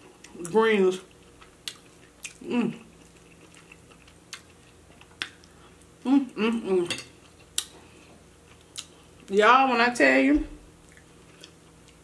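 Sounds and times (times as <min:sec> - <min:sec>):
person chewing: 0:01.1 - 0:09.3, 0:10.8 - 0:12.0.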